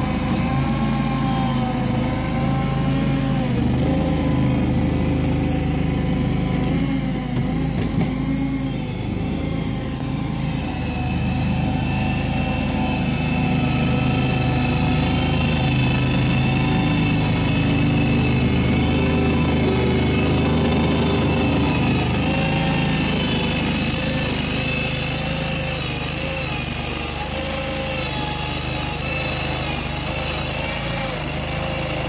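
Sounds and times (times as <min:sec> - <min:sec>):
high steady whine: 0:00.0 - 0:25.3
wheel loader engine running: 0:00.0 - 0:32.0.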